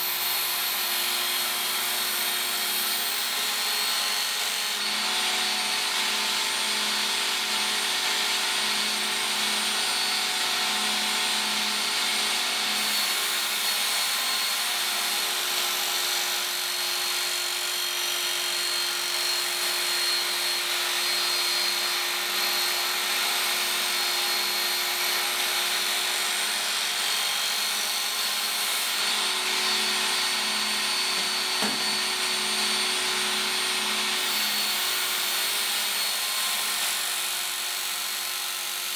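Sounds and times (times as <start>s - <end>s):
belt sharpener grinding steel blade: 11.8s - 38.9s.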